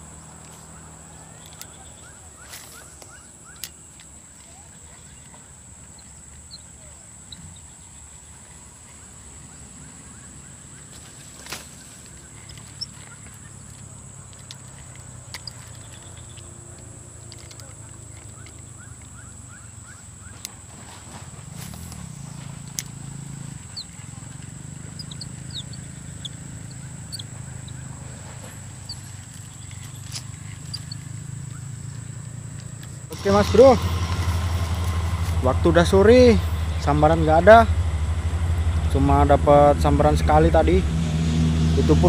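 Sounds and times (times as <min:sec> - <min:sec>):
fishing rod and reel handling: 0:10.9 - 0:19.6, 0:21.5 - 0:35.9
high-pitched insect drone: 0:22.0 - 0:42.0
quick bird chirps: 0:23.3 - 0:32.5
thin high whine: 0:33.1 - 0:41.8
low rumble: 0:33.1 - 0:42.0.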